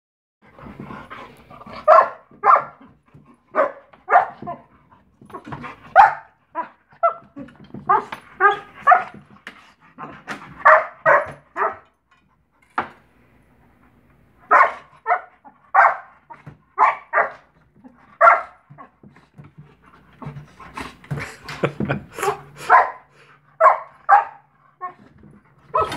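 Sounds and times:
dog barking and yipping: 0:01.7 - 0:04.7, 0:05.3 - 0:09.3, 0:10.0 - 0:11.9, 0:14.4 - 0:19.0, 0:22.2 - 0:25.9.

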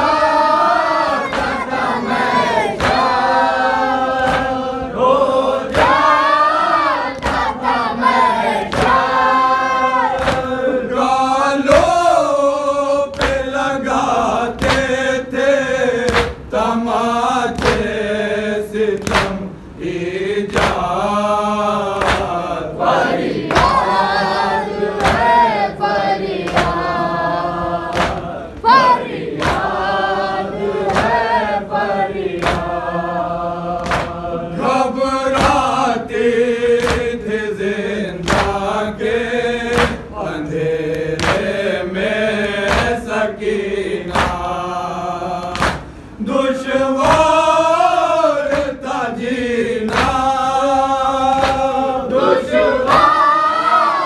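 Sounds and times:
men chanting in unison: 0:00.0 - 0:54.0
hands slapping chests: 0:01.1 - 0:03.2, 0:04.2 - 0:04.6, 0:05.5 - 0:06.2, 0:07.0 - 0:07.6, 0:08.7 - 0:09.1, 0:10.1 - 0:10.6, 0:13.1 - 0:13.6, 0:14.6 - 0:15.0, 0:16.1 - 0:16.4, 0:17.5 - 0:18.0, 0:19.0 - 0:19.4, 0:20.5 - 0:20.9, 0:22.0 - 0:22.4, 0:23.4 - 0:24.0, 0:25.0 - 0:25.5, 0:26.4 - 0:27.0, 0:27.9 - 0:29.8, 0:30.8 - 0:31.2, 0:32.3 - 0:32.7, 0:33.8 - 0:34.2, 0:35.3 - 0:35.8, 0:36.8 - 0:37.2, 0:38.2 - 0:38.6, 0:39.7 - 0:41.6, 0:42.4 - 0:43.1, 0:44.1 - 0:44.5, 0:45.4 - 0:46.0, 0:47.0 - 0:47.4, 0:49.9 - 0:50.4, 0:51.3 - 0:51.8.

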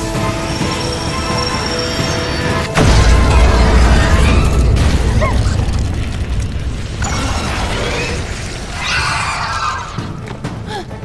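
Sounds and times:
explosion boom and rumble: 0:02.8 - 0:08.8.

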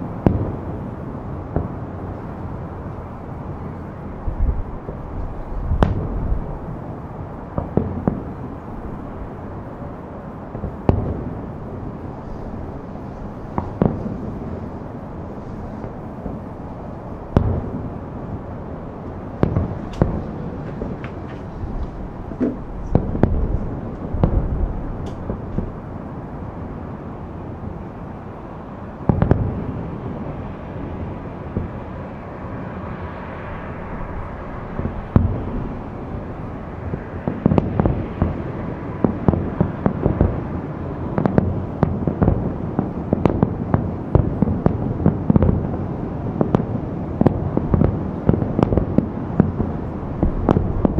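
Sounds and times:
firework shells booming: 0:04.8 - 0:06.6, 0:13.2 - 0:14.8, 0:17.3 - 0:26.0, 0:41.1 - 0:50.9
rolling rumble: 0:17.3 - 0:26.0, 0:49.9 - 0:50.9.

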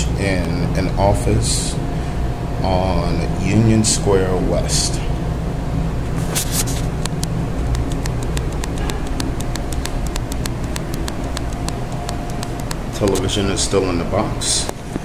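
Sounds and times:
faint hum: 0:00.0 - 0:15.0
low room rumble: 0:00.0 - 0:15.0.

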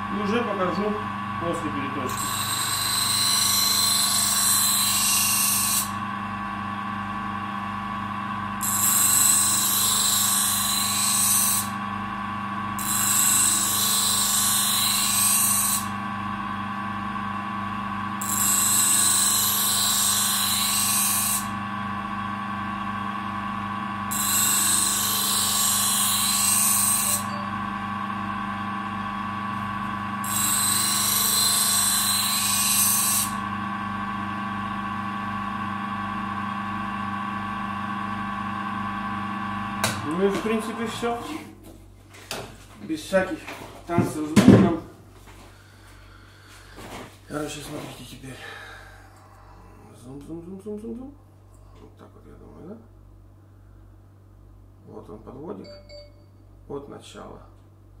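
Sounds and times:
bench grinder running: 0:00.0 - 0:41.5
knife blade grinding on wheel: 0:02.1 - 0:06.0, 0:08.6 - 0:11.8, 0:12.8 - 0:15.9, 0:18.2 - 0:21.5, 0:24.1 - 0:27.5, 0:30.2 - 0:33.4.

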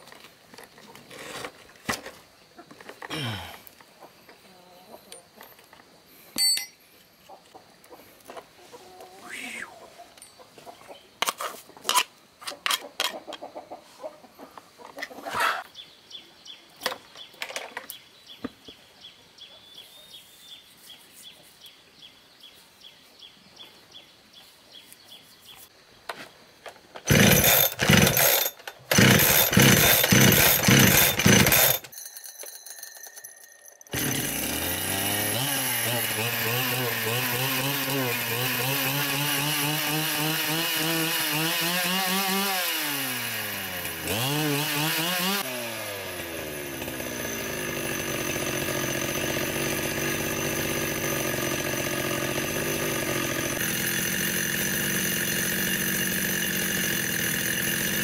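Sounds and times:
chickens clucking: 0:03.8 - 0:05.6, 0:07.2 - 0:15.7
power tool running: 0:27.1 - 0:31.9, 0:33.9 - 0:58.0.

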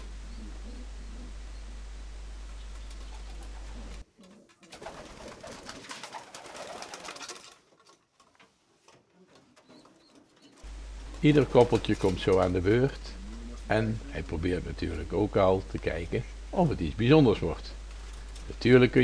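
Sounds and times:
low steady hum: 0:00.0 - 0:04.2, 0:10.6 - 0:19.0
pigeons cooing: 0:00.0 - 0:07.2, 0:09.6 - 0:14.6
rustling and light clicks: 0:05.7 - 0:12.5.

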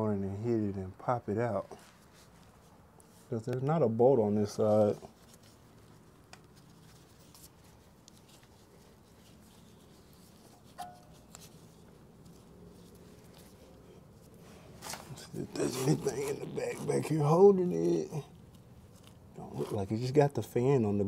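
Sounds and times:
faint clicks and taps: 0:05.8 - 0:08.5.

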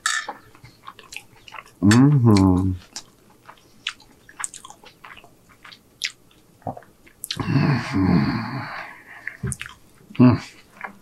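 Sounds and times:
close chewing with wet mouth clicks: 0:00.5 - 0:01.8, 0:02.4 - 0:07.4, 0:09.2 - 0:10.2
breathy sound with low hum: 0:07.4 - 0:09.6.

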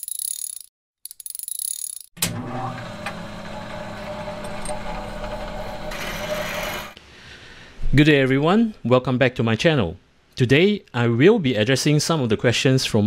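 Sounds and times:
low mechanical hum: 0:02.2 - 0:07.0.

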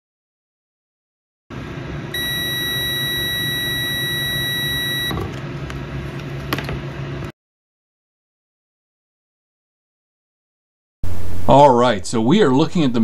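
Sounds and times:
multimeter continuity beep: 0:02.2 - 0:05.2.

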